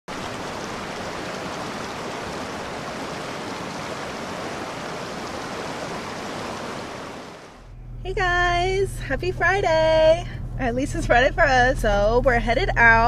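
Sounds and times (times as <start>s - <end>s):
stream rushing over rocks: 0.1s - 7.6s.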